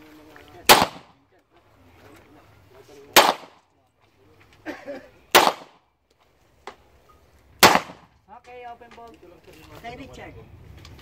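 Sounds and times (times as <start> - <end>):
handgun shots: 0.7 - 1.2, 3.2 - 3.6, 5.3 - 5.8, 7.6 - 8.1.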